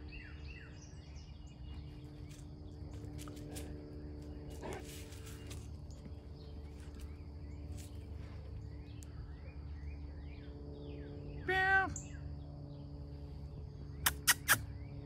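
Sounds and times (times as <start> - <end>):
insect drone: 0.0 - 15.0
small birds chirping: 0.0 - 15.0.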